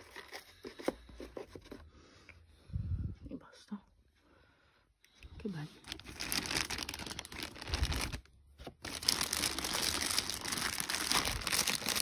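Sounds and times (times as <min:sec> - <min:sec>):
plastic bag crinkling: 0:05.8 - 0:12.0.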